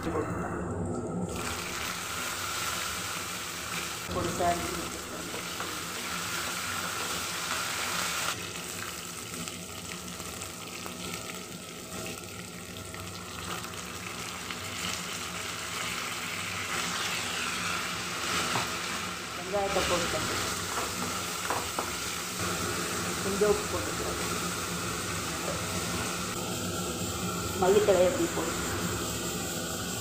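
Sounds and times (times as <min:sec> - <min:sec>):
hot oil sizzling: 0:01.2 - 0:30.0.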